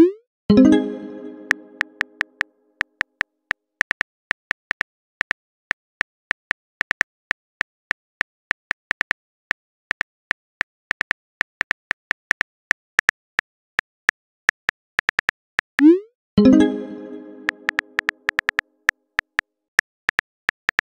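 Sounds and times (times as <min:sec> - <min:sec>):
phone keyboard typing clicks: 0:17.2 - 0:18.6.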